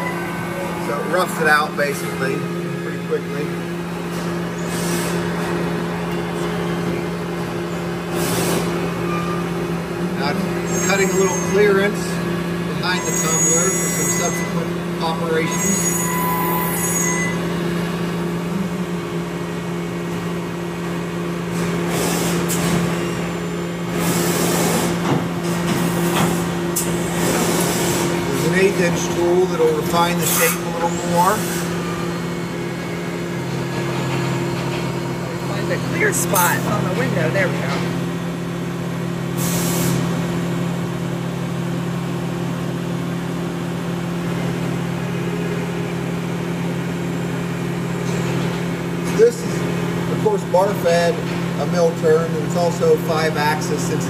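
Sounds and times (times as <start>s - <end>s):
end mill cutting metal: 0.0s - 39.4s
machine spindle humming: 0.0s - 54.0s
coolant hiss: 39.4s - 40.0s.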